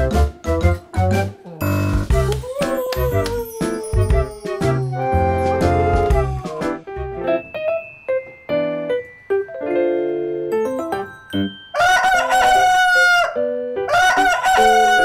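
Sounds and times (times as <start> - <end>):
light piano background music: 0.0 - 15.0
rooster crowing: 11.8 - 15.0.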